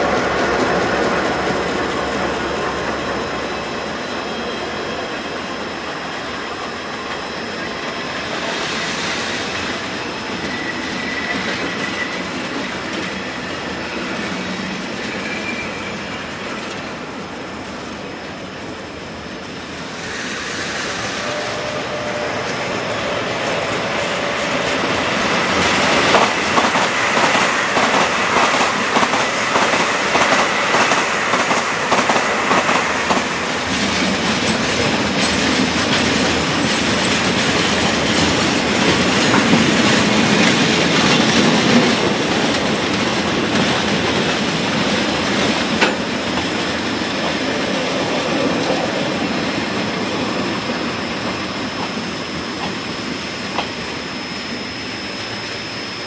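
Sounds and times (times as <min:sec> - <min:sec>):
freight train rolling rumble: 0:00.0 - 0:56.0
train wheels clicking over rail joints: 0:19.5 - 0:54.1.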